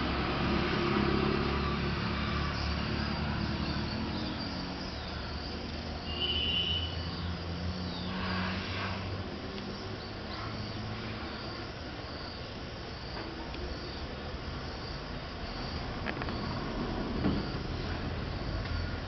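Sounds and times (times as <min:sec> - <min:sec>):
low mechanical drone: 0:00.0 - 0:06.0.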